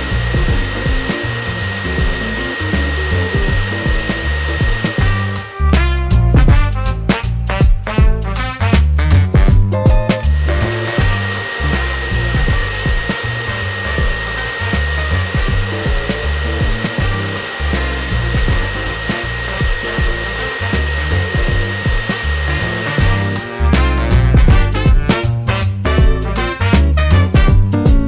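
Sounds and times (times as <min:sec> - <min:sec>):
blower dryer whine and rush: 0:00.0 - 0:07.4, 0:09.9 - 0:27.1
background music with beat: 0:00.0 - 0:28.0.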